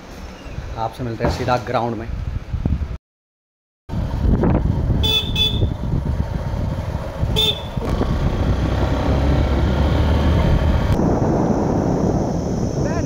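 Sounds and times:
motorbike engine and wind rumble: 0.1s - 3.0s, 3.9s - 13.0s
horn tooting: 5.0s - 5.8s, 7.3s - 8.0s.

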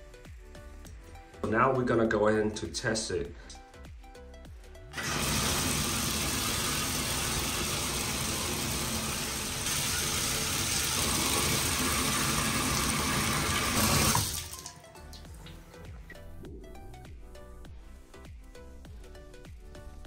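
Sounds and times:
water gushing into bathtub: 5.0s - 14.8s.

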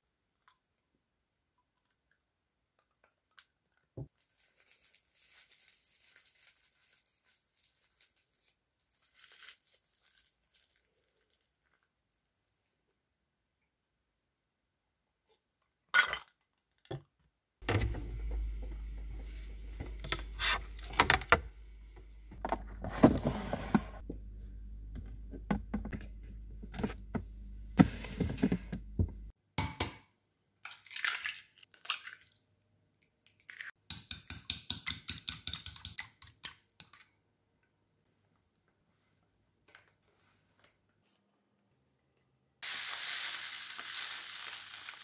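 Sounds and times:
low steady hum: 17.6s - 29.3s.

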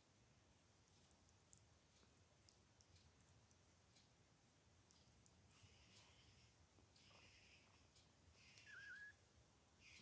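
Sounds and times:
soft rustling: 0.6s - 4.2s, 4.8s - 10.0s
faint wavering squeak: 8.4s - 9.3s.

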